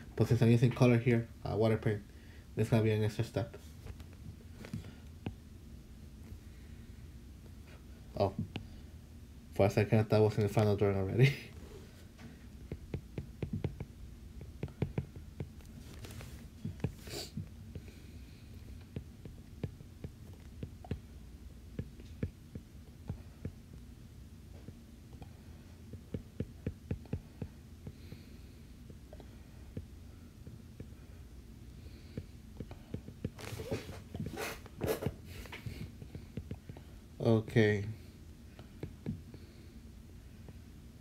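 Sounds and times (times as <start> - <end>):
low steady hum: 0.0 - 41.0
stylus tapping on glass screen: 12.7 - 15.6.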